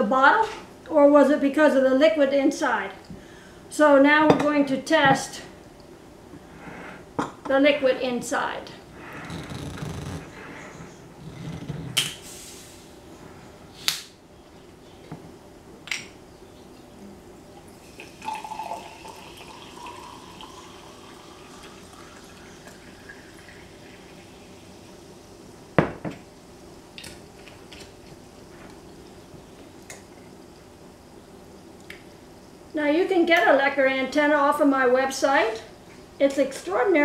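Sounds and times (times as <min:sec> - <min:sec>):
sparkling water pouring into glass: 0:17.8 - 0:24.8.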